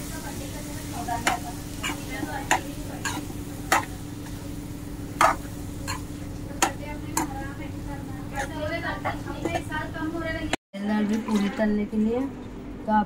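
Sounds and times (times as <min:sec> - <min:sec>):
low sizzle: 0:00.0 - 0:10.6
metal spoon clinking and scraping pan: 0:01.2 - 0:04.0, 0:05.2 - 0:07.4, 0:08.4 - 0:08.6.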